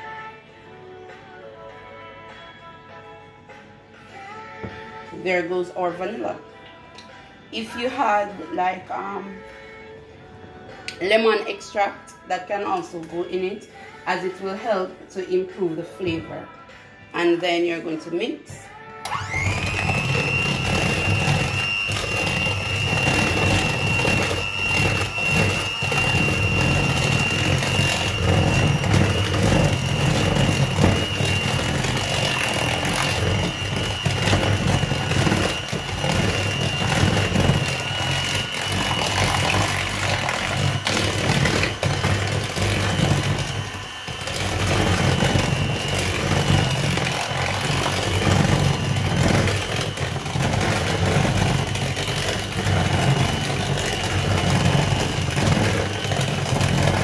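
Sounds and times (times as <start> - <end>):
electric hand mixer whining: 19.0 - 57.0.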